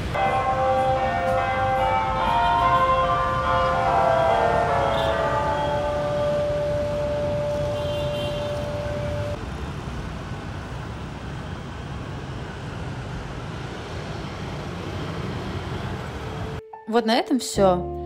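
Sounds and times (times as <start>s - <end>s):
street traffic hum: 0.0s - 16.6s
steady ringing tone: 0.1s - 9.4s.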